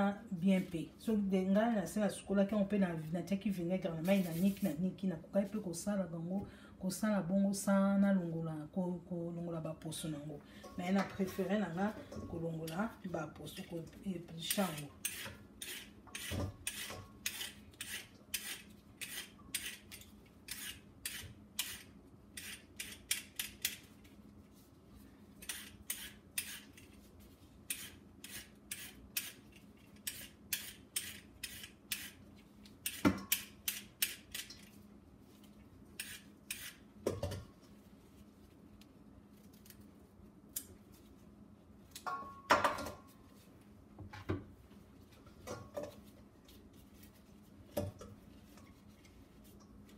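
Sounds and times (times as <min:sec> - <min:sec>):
peeler scraping carrots: 0:14.5 - 0:23.8, 0:25.4 - 0:26.9, 0:27.7 - 0:32.2, 0:36.0 - 0:36.8.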